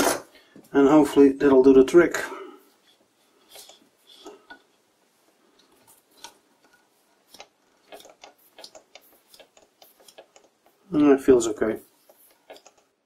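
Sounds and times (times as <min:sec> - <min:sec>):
lathe spindle clicking: 0:05.6 - 0:10.8.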